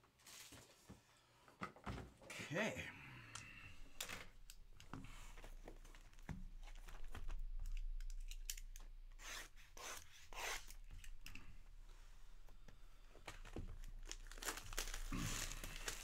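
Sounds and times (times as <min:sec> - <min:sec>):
packaging rustling and taps: 0:13.1 - 0:15.1
packaging ripping: 0:13.3 - 0:16.0.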